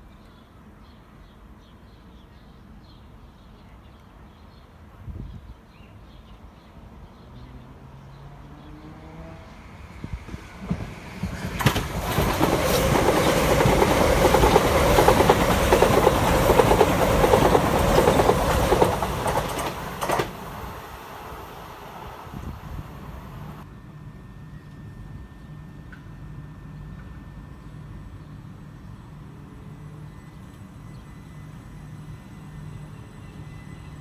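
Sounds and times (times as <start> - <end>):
electric train passing: 7.6 - 34.0
wheels clattering over rails: 10.4 - 21.0.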